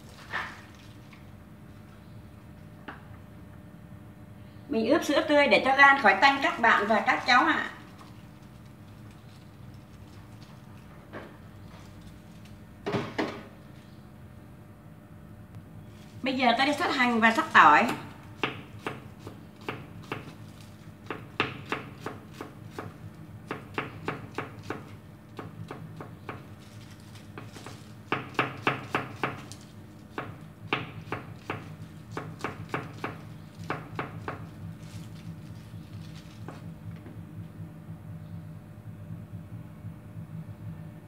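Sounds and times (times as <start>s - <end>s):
knife chopping on wooden board: 18.4s - 20.4s, 21.0s - 26.5s, 27.2s - 35.0s.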